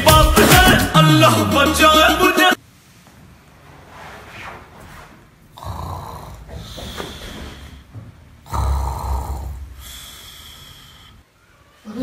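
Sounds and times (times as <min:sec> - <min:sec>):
man snoring: 0:05.5 - 0:07.8, 0:08.4 - 0:11.2
faint breath: 0:06.1 - 0:11.8.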